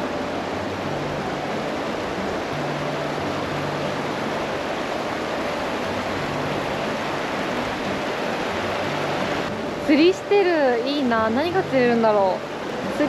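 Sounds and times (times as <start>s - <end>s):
river rushing over stones: 0.0s - 13.0s.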